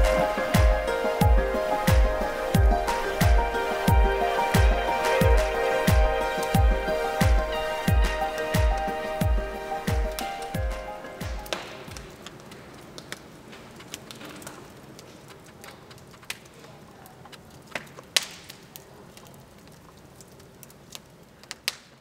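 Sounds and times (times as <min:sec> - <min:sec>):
faint hiss: 0:00.0 - 0:15.3
clicks and crackles: 0:10.1 - 0:22.0.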